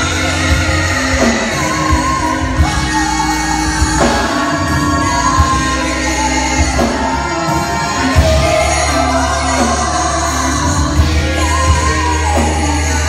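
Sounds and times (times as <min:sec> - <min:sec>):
backing singers: 0:00.0 - 0:13.0
organ playing: 0:00.0 - 0:13.0
woman singing gospel: 0:00.0 - 0:13.0.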